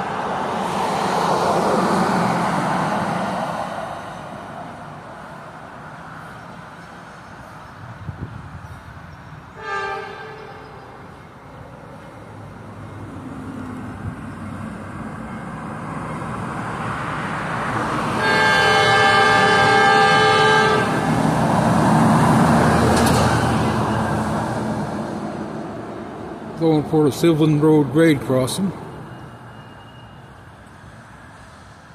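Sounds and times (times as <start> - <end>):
locomotive engine and wheel rumble: 0.0 - 31.9
train horn blast: 9.5 - 11.0, 18.2 - 21.1.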